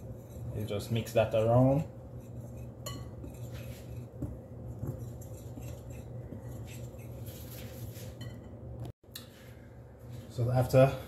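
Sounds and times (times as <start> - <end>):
whisk scratching flour: 0.0 - 8.4.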